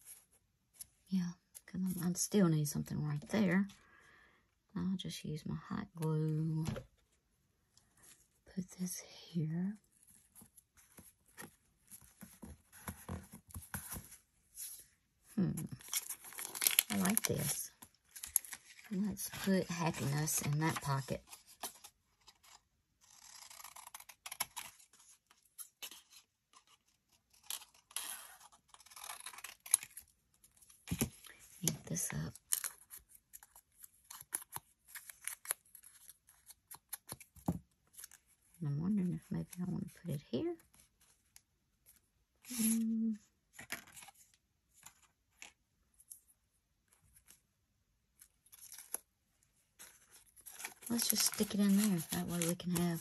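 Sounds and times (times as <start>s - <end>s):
paper rustling and scraping: 49.8s - 53.0s.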